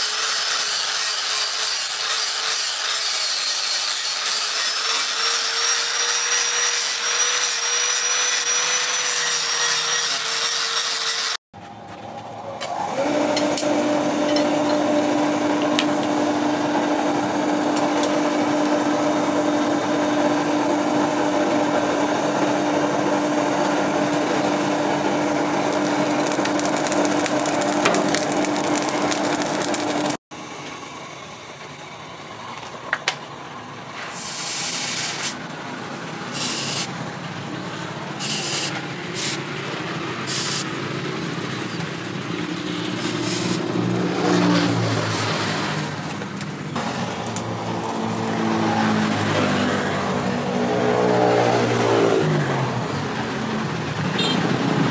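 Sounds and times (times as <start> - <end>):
angle grinder grinding steel: 0.0 - 11.4, 25.2 - 30.2
electric motor humming and scraping: 24.2 - 30.2.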